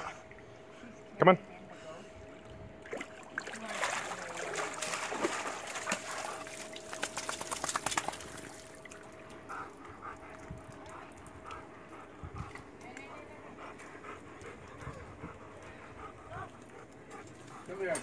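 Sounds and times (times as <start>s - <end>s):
dripping water patter: 2.8s - 9.4s
water splashing off a dog: 2.9s - 9.0s.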